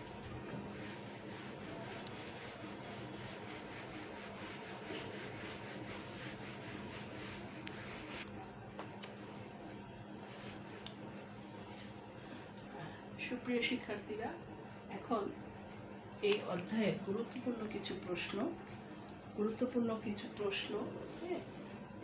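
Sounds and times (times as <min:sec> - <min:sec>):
duster wiping whiteboard: 0:00.0 - 0:08.2.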